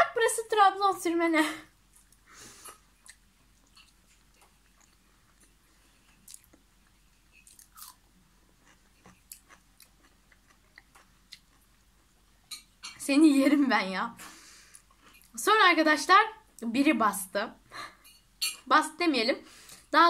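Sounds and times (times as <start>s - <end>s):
faint chewing: 1.9s - 13.0s, 14.2s - 15.4s.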